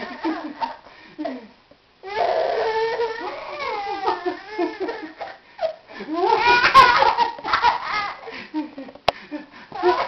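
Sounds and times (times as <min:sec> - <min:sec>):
baby giggling and laughing: 0:03.0 - 0:08.4.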